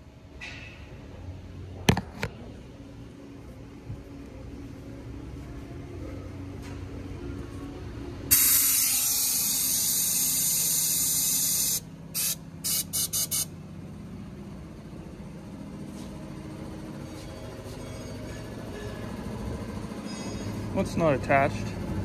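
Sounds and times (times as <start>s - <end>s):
compressed air hissing: 8.3s - 13.5s.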